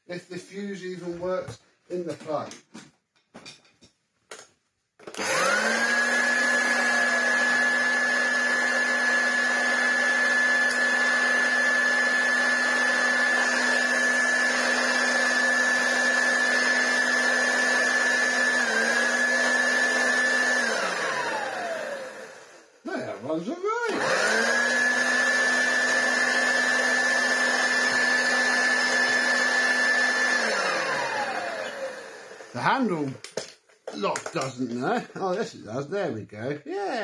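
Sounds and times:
vacuum cleaner motor whining: 0:05.0 - 0:32.9.

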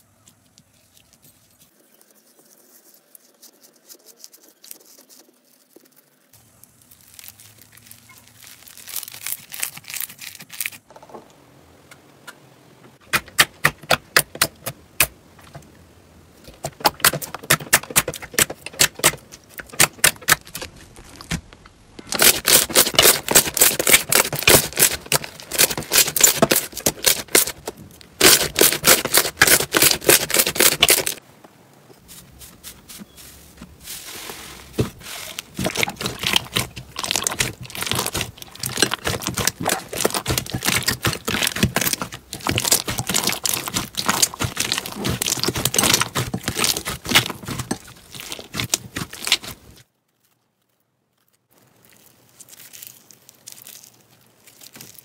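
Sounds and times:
slime crackling and popping: 0:05.9 - 0:10.9, 0:16.9 - 0:31.2, 0:34.8 - 0:55.0.

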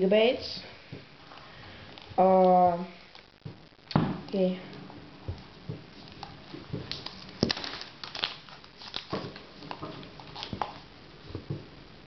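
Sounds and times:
packaging rustling and scraping: 0:05.4 - 0:11.6.

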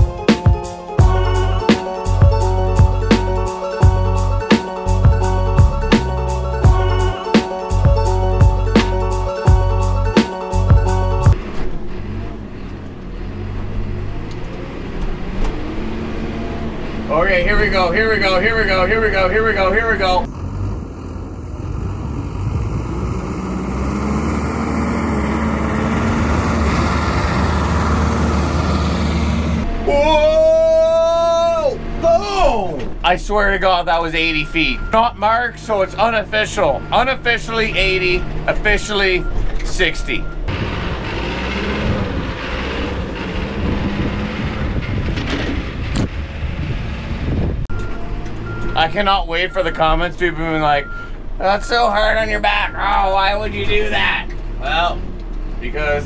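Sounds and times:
diesel engine running hard: 0:00.9 - 0:56.0
wind buffeting microphone: 0:41.6 - 0:48.1.

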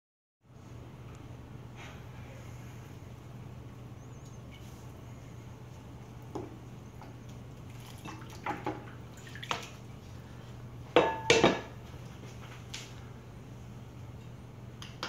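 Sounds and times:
water splashing: 0:07.0 - 0:10.0.

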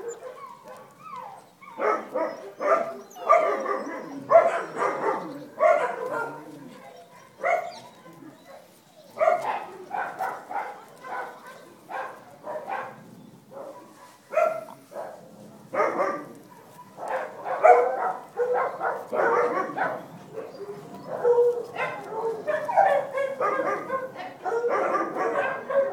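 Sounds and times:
small dogs yapping: 0:00.0 - 0:25.9.

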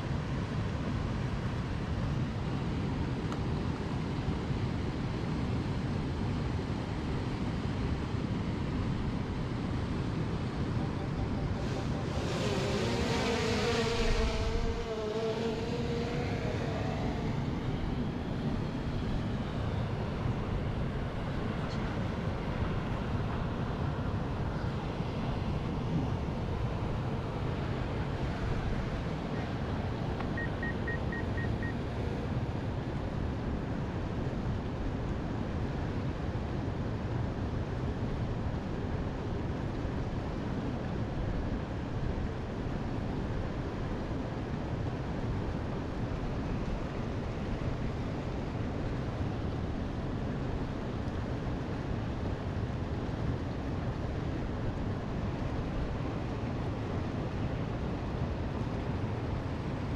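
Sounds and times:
wind rumbling on microphone: 0:00.0 - 0:59.9
drone propeller whine: 0:08.9 - 0:32.3.

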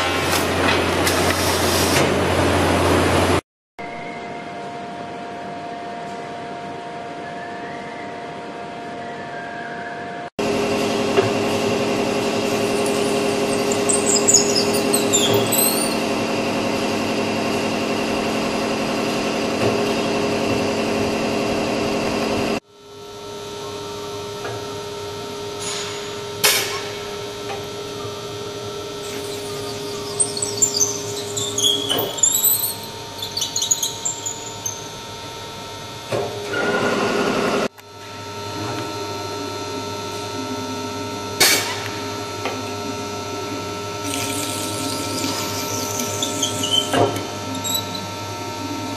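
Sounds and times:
brief high squeaks: 0:12.5 - 0:16.1, 0:29.0 - 0:35.0, 0:44.0 - 0:48.1.

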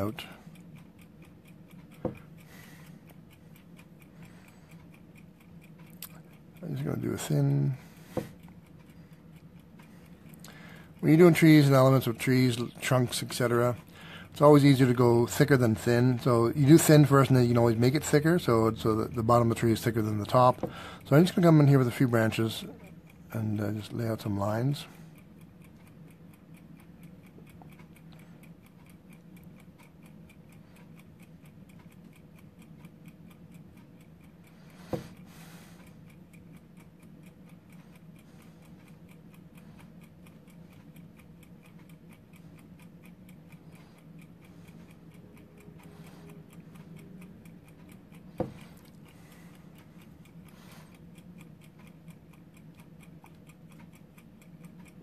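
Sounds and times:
low room hum: 0:00.0 - 0:55.0
mechanical timer ticking: 0:00.0 - 0:55.0.

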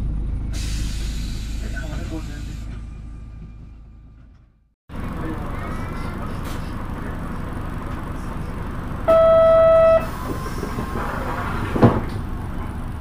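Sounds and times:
buses running: 0:00.0 - 0:13.0
loud steady beep: 0:09.1 - 0:10.1.

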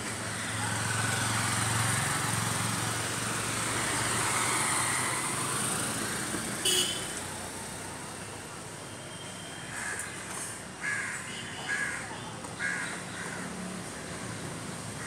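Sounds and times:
auto-rickshaw engine running: 0:00.0 - 0:08.4
road noise: 0:00.0 - 0:15.0.

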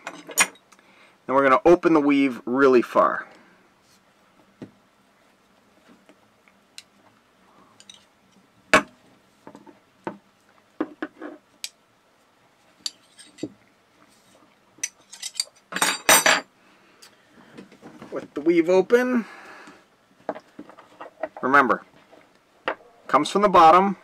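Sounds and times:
metal tools clinking on wooden table: 0:14.8 - 0:16.5.

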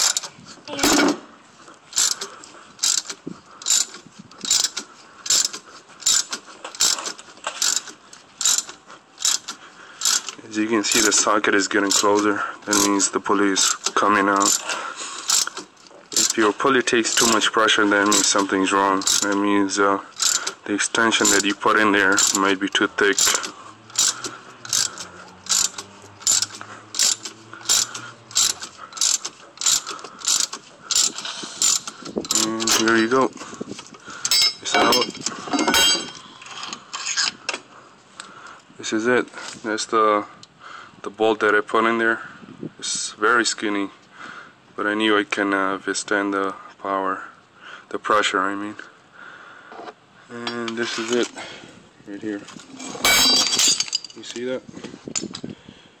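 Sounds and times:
ratchet wrench clicking: 0:00.0 - 0:00.3, 0:01.9 - 0:11.2, 0:11.9 - 0:13.0, 0:13.6 - 0:16.4, 0:17.1 - 0:19.4, 0:20.2 - 0:20.6, 0:21.2 - 0:22.5, 0:23.1 - 0:32.9.

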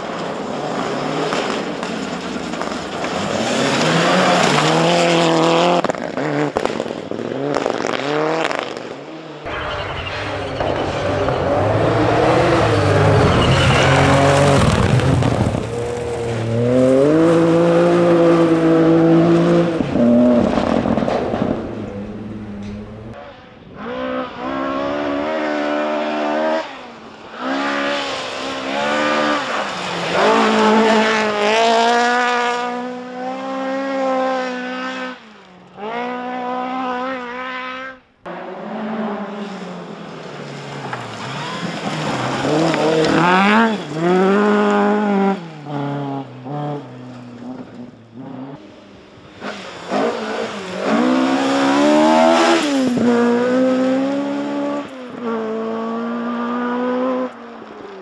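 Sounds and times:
tyres on gravel: 0:00.0 - 0:08.9, 0:09.5 - 0:17.3, 0:39.4 - 0:48.0
rally car engines revving: 0:00.0 - 0:58.0.

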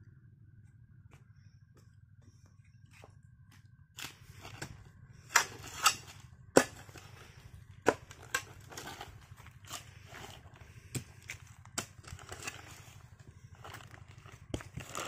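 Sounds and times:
dirt scraping and crumbling: 0:04.0 - 0:15.0
hoe striking stony soil: 0:04.0 - 0:15.0.

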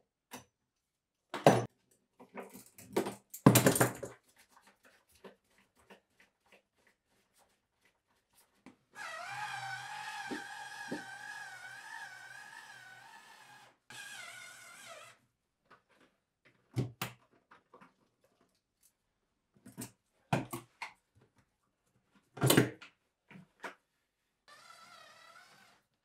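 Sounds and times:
electric screwdriver whirring: 0:09.0 - 0:15.2, 0:24.5 - 0:25.8.

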